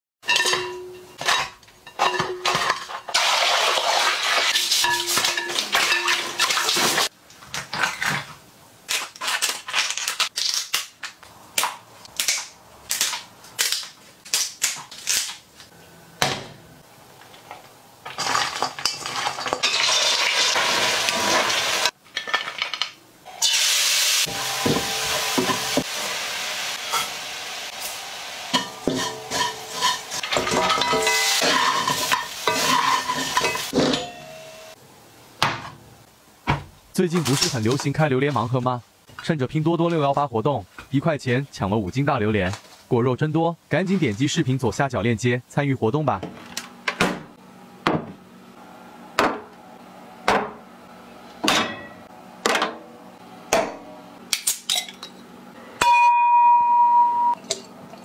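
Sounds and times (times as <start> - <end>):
food sizzling in a pan: 3.1 - 7.1, 19.0 - 22.0, 23.3 - 34.8.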